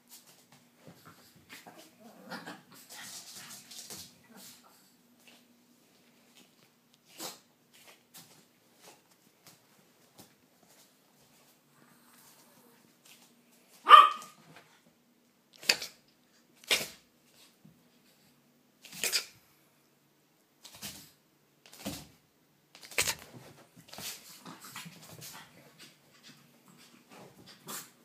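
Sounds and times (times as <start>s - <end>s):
puppies barking: 13.9s - 14.3s.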